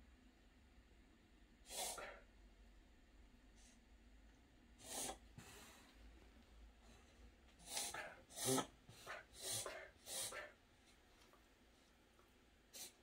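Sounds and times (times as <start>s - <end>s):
dog reverse sneezing: 1.7s - 2.2s, 4.8s - 5.2s, 7.6s - 10.6s.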